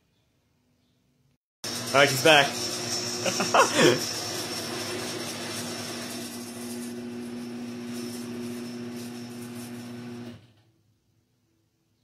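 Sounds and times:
garage door opener motor humming: 0:01.6 - 0:10.7.

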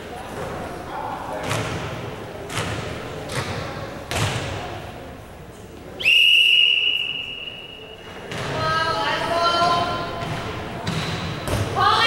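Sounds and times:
volleyball hits echoing: 0:01.3 - 0:04.9, 0:07.6 - 0:09.0, 0:09.6 - 0:12.0
referee's whistle blast: 0:06.0 - 0:08.0.

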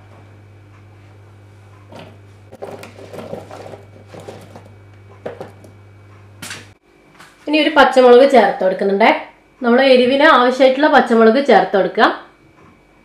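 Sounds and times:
steady low hum: 0:00.0 - 0:13.0
cucumber pieces clattering into pot: 0:01.9 - 0:05.7.

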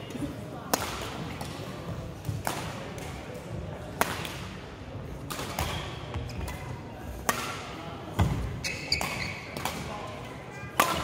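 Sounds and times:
rackets hitting shuttlecock: 0:00.7 - 0:03.4, 0:05.2 - 0:11.0.

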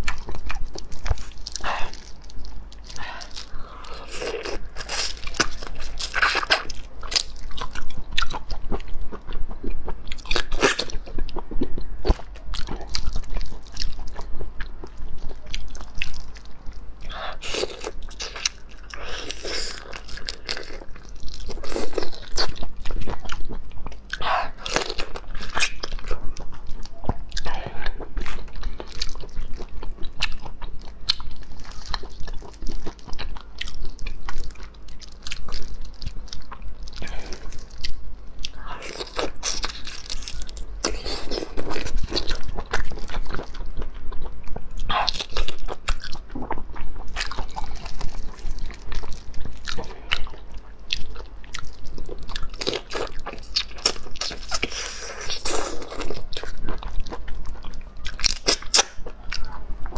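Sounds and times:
wet chewing: 0:00.0 - 0:43.6.

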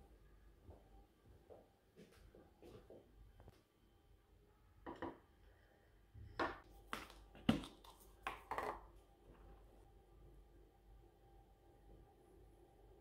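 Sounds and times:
dishes knocking and clinking: 0:04.9 - 0:05.2.

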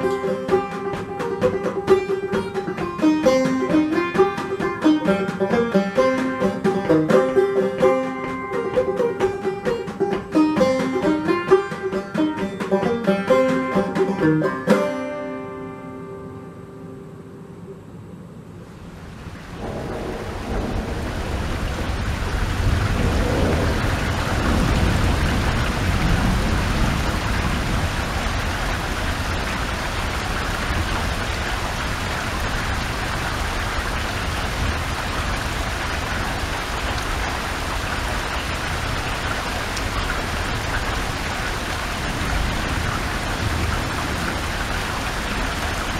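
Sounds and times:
rain falling: 0:00.0 - 0:15.0, 0:17.8 - 0:45.9
low rumble of thunder: 0:18.3 - 0:39.2, 0:39.8 - 0:45.9.

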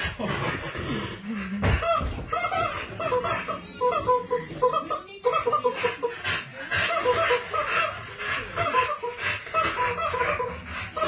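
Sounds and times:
rubber chicken toy squeaking: 0:01.8 - 0:06.0.

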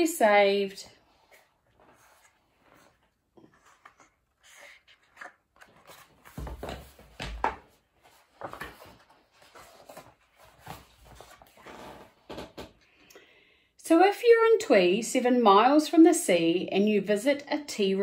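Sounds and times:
book pages rustling: 0:01.2 - 0:12.1.

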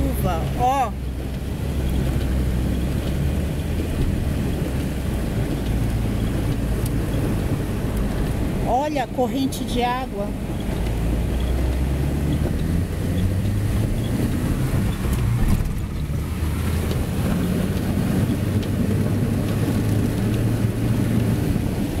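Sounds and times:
car engine rumbling: 0:00.0 - 0:22.0
heavy rain: 0:00.0 - 0:22.0
light ticks: 0:01.2 - 0:03.2, 0:03.9 - 0:07.2, 0:16.8 - 0:18.8.

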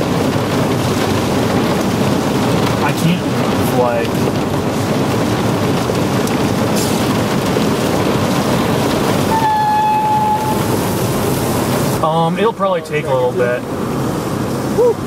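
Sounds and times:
floodwater rushing and churning: 0:00.0 - 0:15.0
rain on car: 0:00.0 - 0:15.0.

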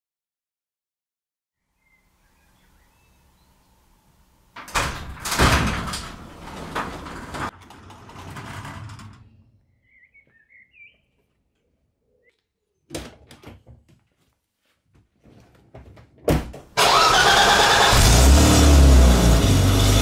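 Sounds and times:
birds chirping: 0:01.6 - 0:04.6, 0:09.2 - 0:12.9
garage door scraping open: 0:04.6 - 0:09.4.

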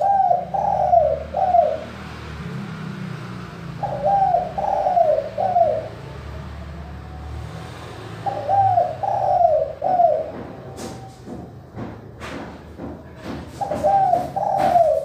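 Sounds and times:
dove cooing: 0:00.0 - 0:02.0, 0:03.6 - 0:06.5, 0:08.1 - 0:11.3, 0:13.5 - 0:15.0.

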